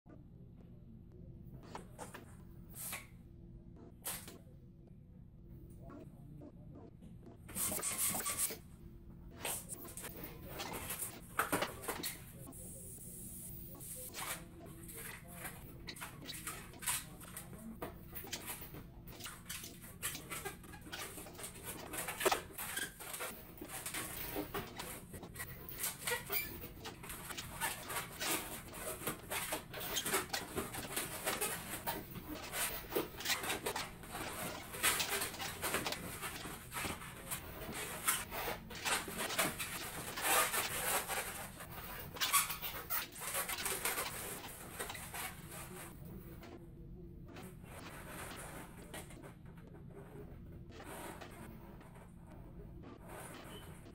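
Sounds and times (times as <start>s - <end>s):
balloon squeaking and rubbing: 7.4s - 8.7s, 13.7s - 46.0s, 50.6s - 53.9s.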